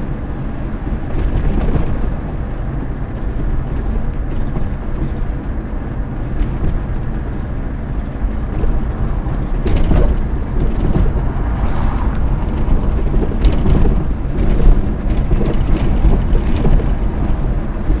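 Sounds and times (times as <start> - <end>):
engine and tyres rumbling: 0.0 - 18.0
car body knocks and rattles: 6.2 - 18.0.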